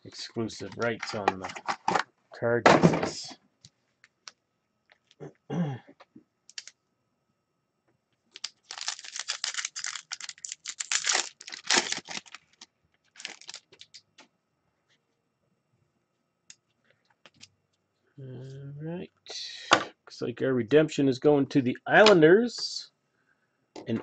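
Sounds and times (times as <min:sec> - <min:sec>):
foil wrapper crinkling and tearing: 0:08.3 - 0:14.0.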